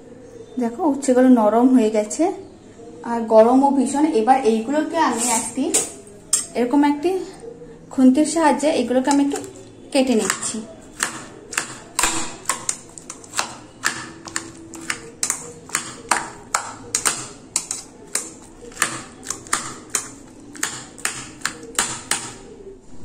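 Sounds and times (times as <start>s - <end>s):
spatula chopping into plastic bowl: 10.2s - 22.5s.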